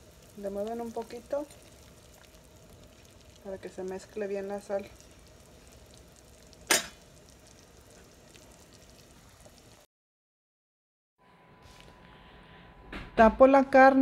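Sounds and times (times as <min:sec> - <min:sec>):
water bubbling in a pot: 0:00.0 - 0:09.9.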